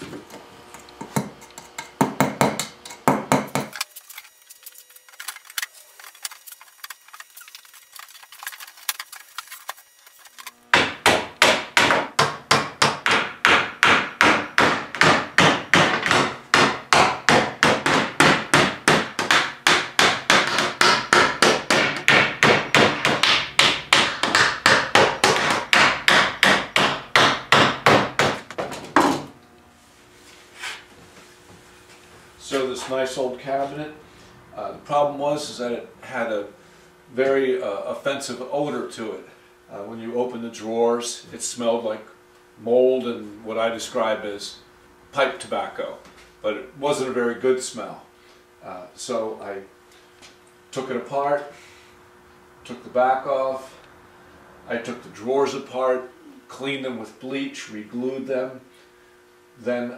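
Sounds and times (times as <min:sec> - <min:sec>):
hammer tapping nails into wood: 0:10.8 - 0:29.1.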